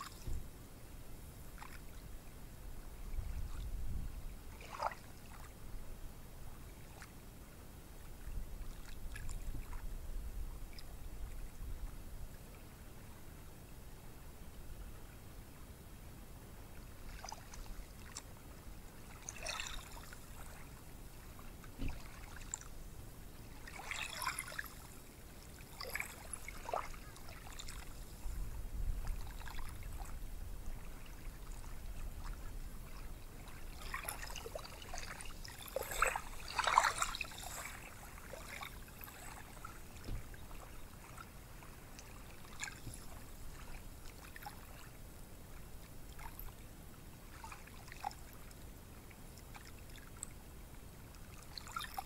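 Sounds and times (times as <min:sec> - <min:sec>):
small waves washing on sand: 0:30.8 - 0:44.8.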